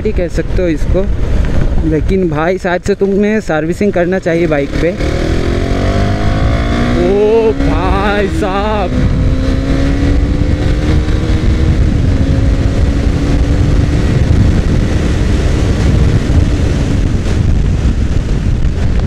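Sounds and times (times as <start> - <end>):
wind buffeting microphone: 0.0 - 19.0
motorcycle engine pulling hard: 4.5 - 19.0.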